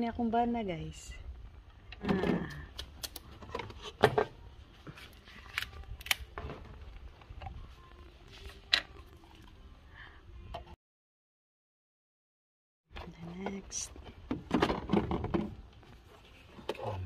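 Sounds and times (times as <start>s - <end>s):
plastic bottles clicking and knocking: 14.2s - 15.8s.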